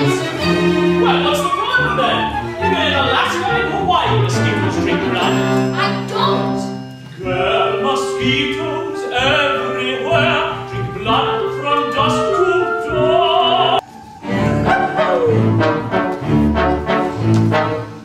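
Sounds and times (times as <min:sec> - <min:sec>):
orchestra playing: 0:00.0 - 0:18.0
male opera singer singing: 0:07.2 - 0:15.1.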